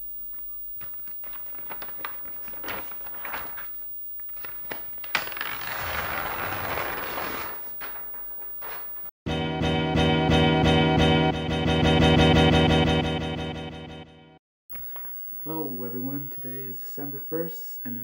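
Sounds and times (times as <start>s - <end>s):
paper snap: 0.8s - 8.9s
paper rustling and crinkling: 0.8s - 9.1s
paper rubbing against wall: 1.0s - 9.1s.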